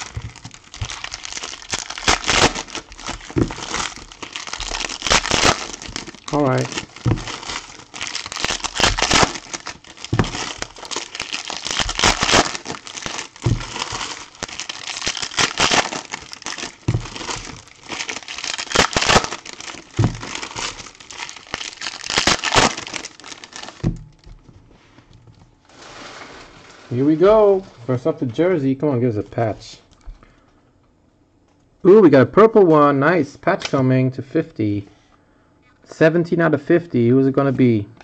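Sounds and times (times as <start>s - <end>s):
foil wrappers crinkling: 0.0s - 24.4s
dull knocks: 20.0s - 20.4s.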